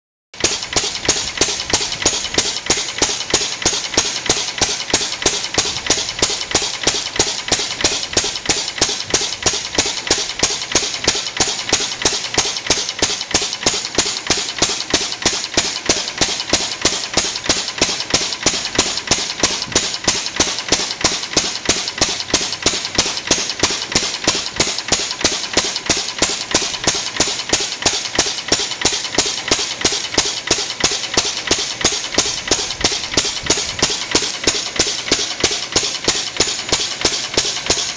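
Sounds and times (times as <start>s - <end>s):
stationary engine exhaust beat: 0.4s - 37.9s.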